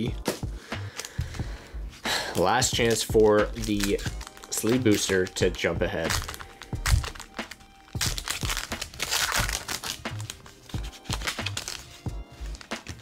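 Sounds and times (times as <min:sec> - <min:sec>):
music with steady beat: 0:00.0 - 0:13.0
foil wrapper crinkling: 0:02.6 - 0:13.0.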